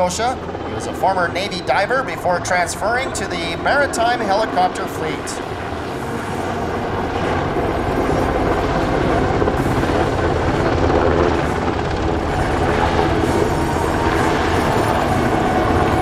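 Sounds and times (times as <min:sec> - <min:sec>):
helicopter rotor beating: 0:00.0 - 0:16.0
turboshaft engines: 0:00.0 - 0:16.0.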